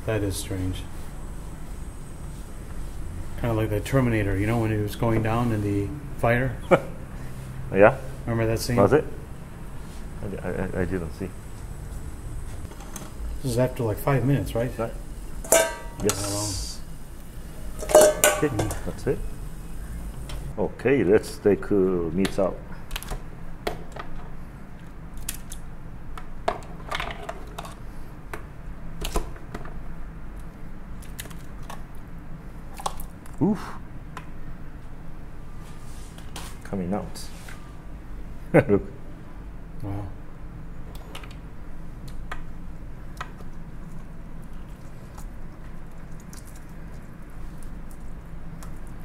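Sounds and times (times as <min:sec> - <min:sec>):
squishy handling of meat: 0:43.7 - 0:49.0.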